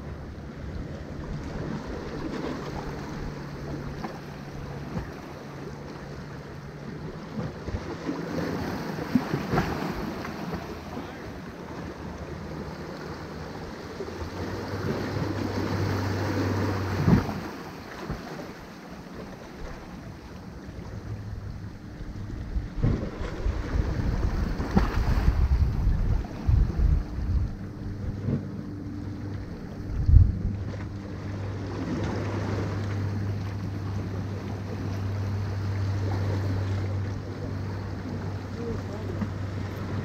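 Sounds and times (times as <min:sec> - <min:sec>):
boat engine hum: 0:00.0 - 0:40.0
waves splashing against rocks: 0:00.6 - 0:40.0
wind on microphone: 0:21.3 - 0:32.8.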